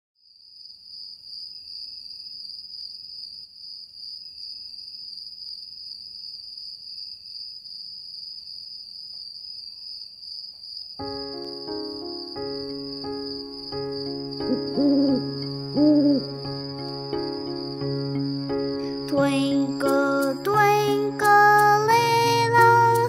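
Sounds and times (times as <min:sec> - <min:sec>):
crickets chirping: 0:00.3 - 0:23.0
lower pitched changing notes: 0:12.4 - 0:23.0.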